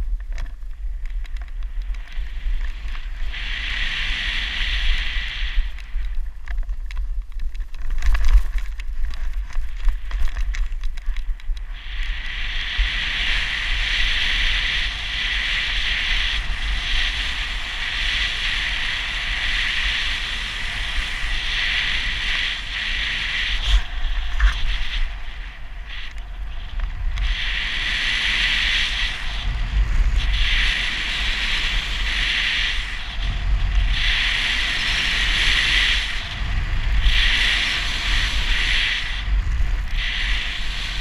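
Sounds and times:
knocks and crackle: 0:00.0 - 0:03.1, 0:05.8 - 0:11.7
snowboard sliding over snow: 0:00.0 - 0:41.0
wind buffeting microphone: 0:00.0 - 0:41.0.

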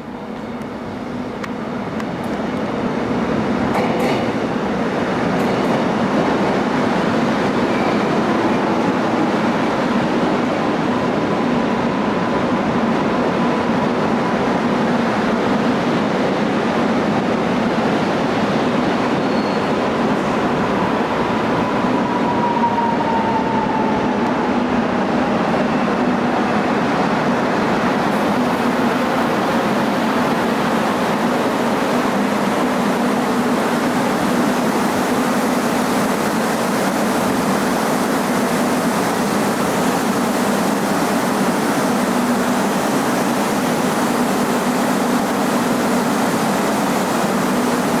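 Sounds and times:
train rolling rumble: 0:00.0 - 0:48.0
train whine falling in pitch: 0:19.1 - 0:25.0.

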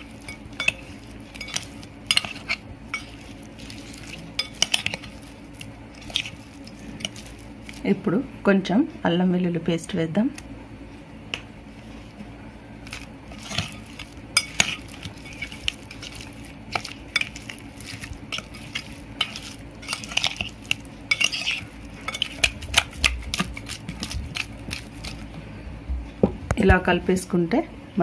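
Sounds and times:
hands rubbing food: 0:12.8 - 0:25.3.

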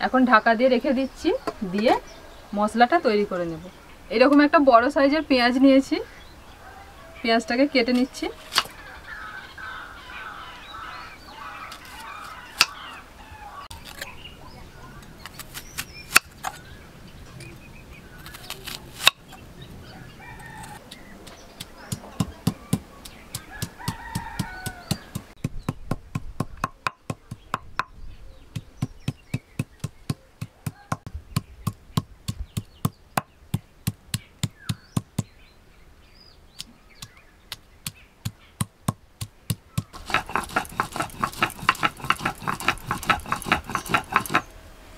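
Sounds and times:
knife and stone roller knocking: 0:38.6 - 0:44.5.

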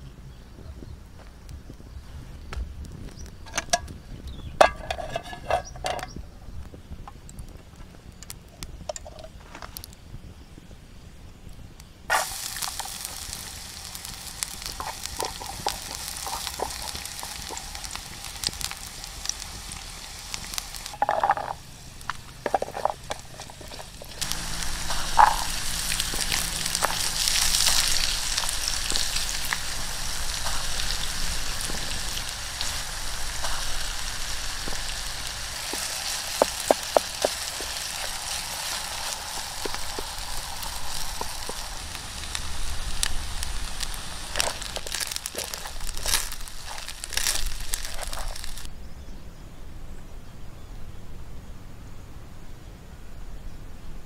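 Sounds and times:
wooden spatula scraping pan: 0:04.6 - 0:06.1, 0:22.3 - 0:29.3
food sizzling in oil: 0:12.1 - 0:48.7.

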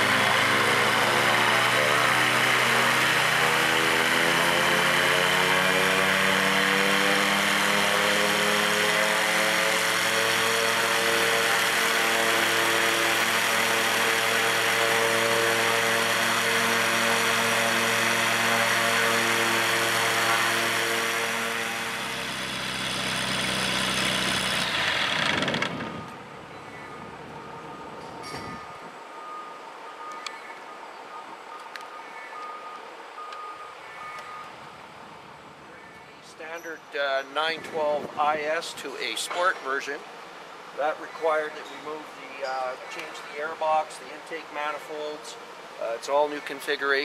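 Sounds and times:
aircraft engine idling: 0:00.0 - 0:28.2.

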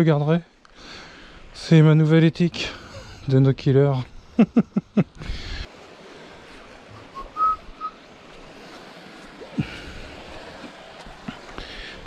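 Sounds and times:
faint hiss of sea and wind: 0:00.0 - 0:12.0
person whistling short notes: 0:07.1 - 0:08.0.

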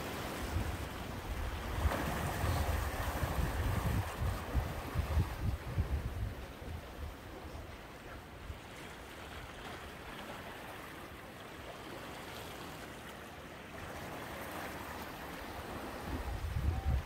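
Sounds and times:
waves washing against rocks: 0:00.0 - 0:07.6.

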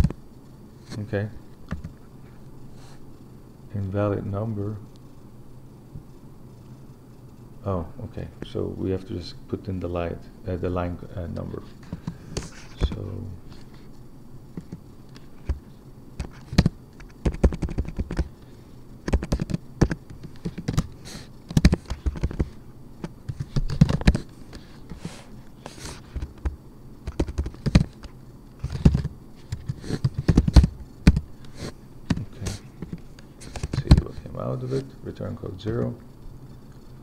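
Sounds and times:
typing on computer keyboard: 0:16.2 - 0:18.3, 0:19.1 - 0:20.9, 0:21.5 - 0:22.5, 0:26.2 - 0:31.3.

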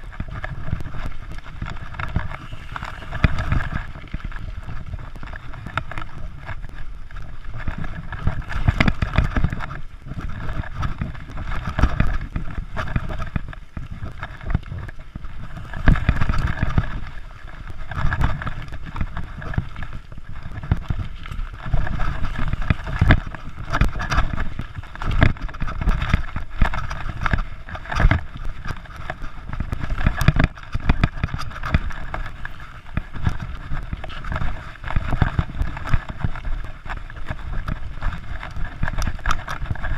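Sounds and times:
bike clicks and rattles: 0:00.0 - 0:39.9
rumble of bike tyres on dirt: 0:00.0 - 0:39.9
wind buffeting microphone: 0:00.0 - 0:39.9.

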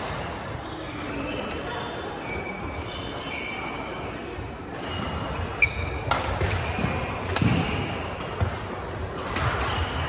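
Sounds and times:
shoes squeaking: 0:04.8 - 0:07.2.

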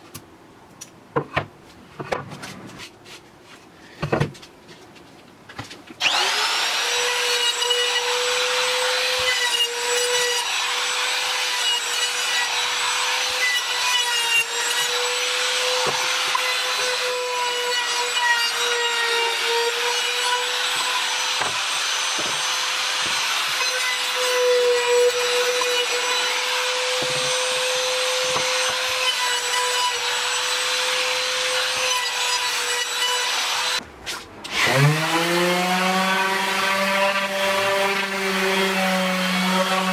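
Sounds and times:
electric sander on wood: 0:06.0 - 0:33.8, 0:34.5 - 0:39.9.

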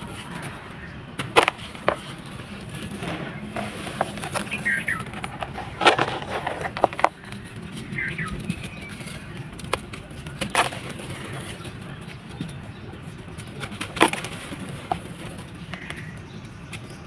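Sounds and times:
sand-cement balls crumbling: 0:00.0 - 0:12.6.

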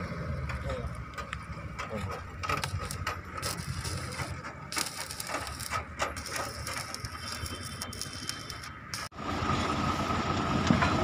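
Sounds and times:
metallic clicking and rattling: 0:00.4 - 0:09.1
hissy crackle: 0:02.6 - 0:09.1.

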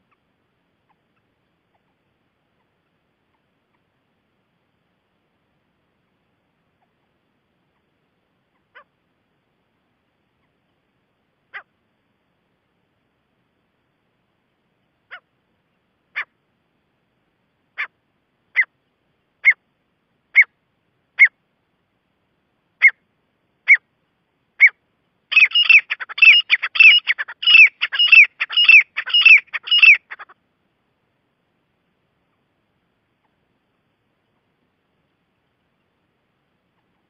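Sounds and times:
francolin calling: 0:15.0 - 0:15.3, 0:17.7 - 0:18.8, 0:19.4 - 0:19.7, 0:20.3 - 0:21.4, 0:22.8 - 0:23.9, 0:24.6 - 0:30.4.

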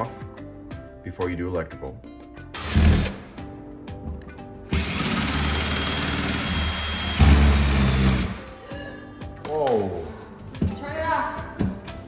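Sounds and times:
cordless drill running: 0:02.6 - 0:03.2, 0:04.7 - 0:08.5.

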